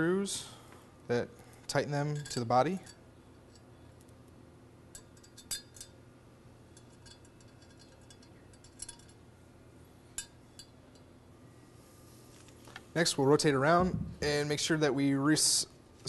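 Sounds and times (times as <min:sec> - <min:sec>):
faint metal clicks and clinks: 0:06.8 - 0:09.2.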